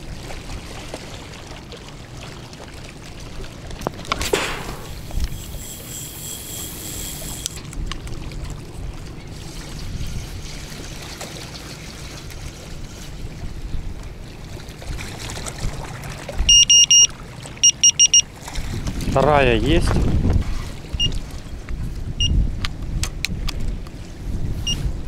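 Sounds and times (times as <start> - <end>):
waves lapping on a stony shore: 0.0 - 17.6, 18.2 - 24.8
wind: 0.0 - 25.0
high electronic beeps: 16.5 - 18.2.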